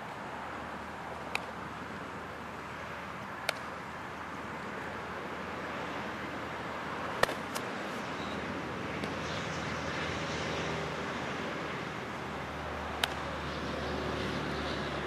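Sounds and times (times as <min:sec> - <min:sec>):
outdoor background hiss: 0:00.0 - 0:15.0
baseball bat cracks and catches: 0:01.3 - 0:01.5, 0:03.4 - 0:03.7, 0:07.2 - 0:07.7, 0:13.0 - 0:13.3.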